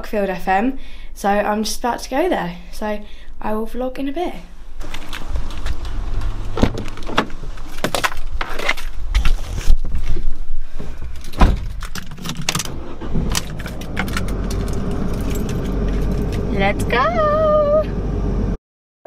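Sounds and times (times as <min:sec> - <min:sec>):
car engine idling: 0:04.6 - 0:08.4, 0:10.8 - 0:18.6
car door shutting thud: 0:04.8 - 0:08.0, 0:11.4 - 0:11.8
car door clicks and knocks: 0:05.9 - 0:08.2, 0:11.4 - 0:14.4
keys jangling: 0:13.4 - 0:16.5.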